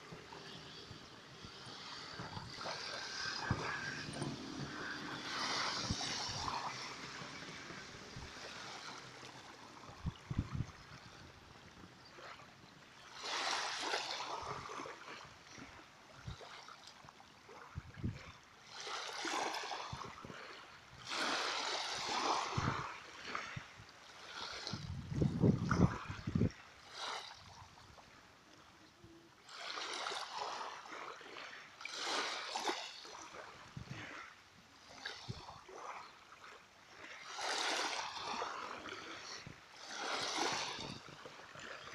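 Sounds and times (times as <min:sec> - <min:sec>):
small waves lapping: 0:00.0 - 0:41.9.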